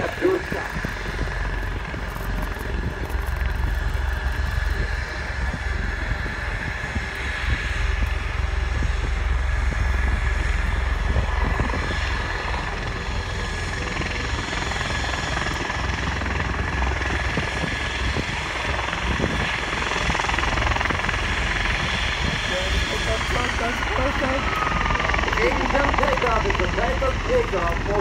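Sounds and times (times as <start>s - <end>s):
aircraft rotor and engine noise: 0.0s - 28.0s.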